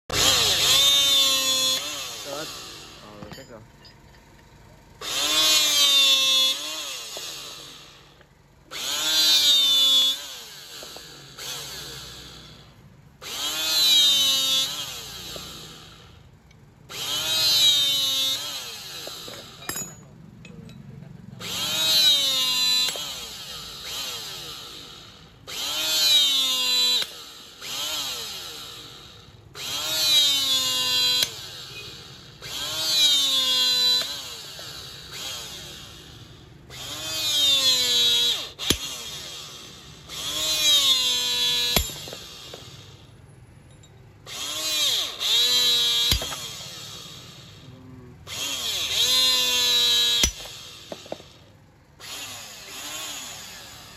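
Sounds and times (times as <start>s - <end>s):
hydraulic rebar cutter motor whine: 0.1s - 20.7s, 21.3s - 53.9s.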